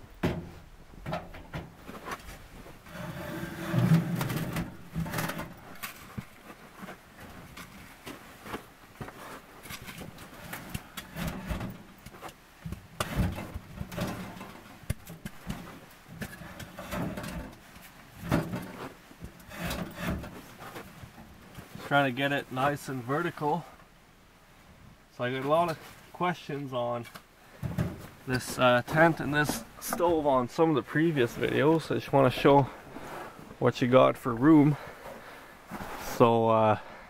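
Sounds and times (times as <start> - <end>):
metal clunks and knocks: 0.1 - 1.9.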